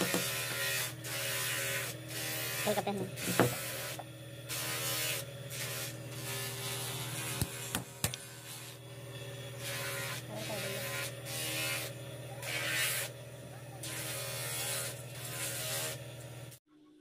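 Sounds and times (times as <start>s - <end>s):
low electrical buzz: 0.0s - 17.0s.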